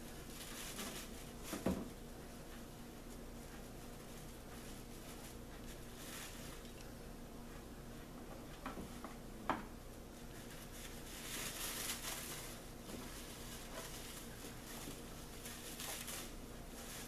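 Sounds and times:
plastic bag crinkling: 10.6s - 17.0s.

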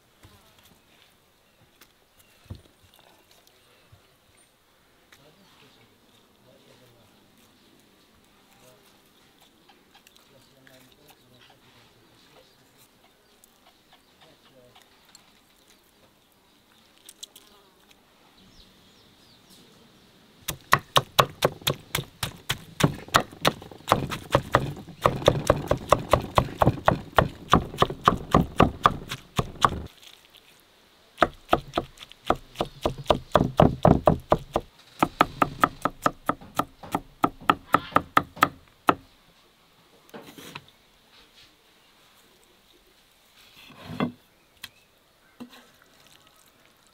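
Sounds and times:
knife chopping on wooden board: 20.5s - 29.9s, 31.2s - 39.0s.

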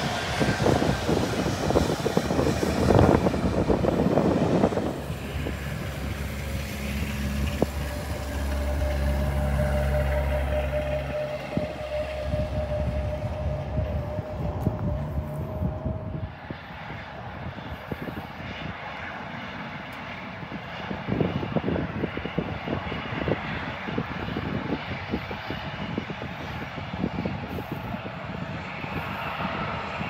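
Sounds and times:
high thin whine: 0.0s - 18.8s
jet engines roaring: 0.0s - 30.0s.

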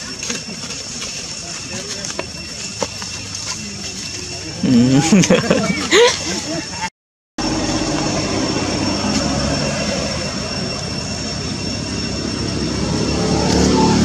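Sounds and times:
engine rumble: 0.0s - 14.0s
thin high-pitched drone: 7.4s - 14.0s.

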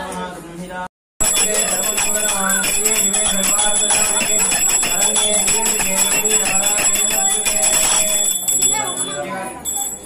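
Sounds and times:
hand bell ringing rapidly: 1.2s - 10.0s.

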